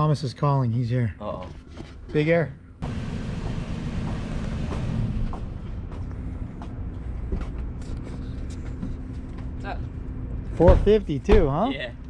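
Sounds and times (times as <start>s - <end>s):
vehicle engine idling: 2.8s - 11.3s.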